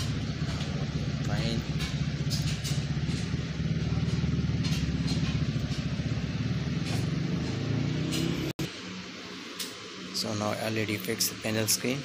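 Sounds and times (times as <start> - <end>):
engine throbbing drone: 0.0 - 9.4.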